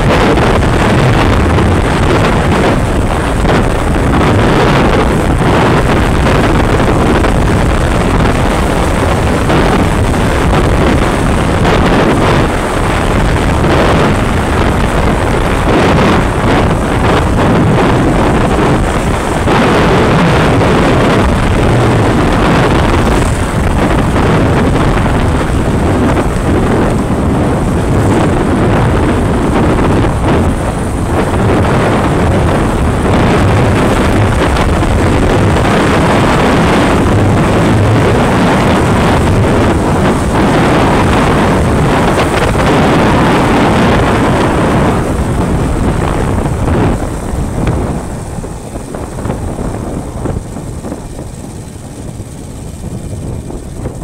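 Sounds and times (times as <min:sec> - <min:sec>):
motorcycle engine running: 0:00.0 - 0:54.0
wind rushing over microphone: 0:00.0 - 0:54.0.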